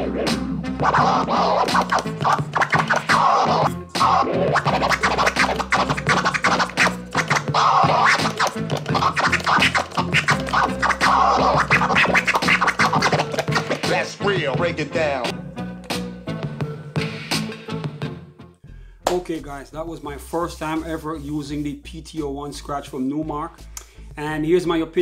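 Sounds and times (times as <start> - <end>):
vinyl scratching: 0.0 - 15.3
looping beat: 0.0 - 17.6.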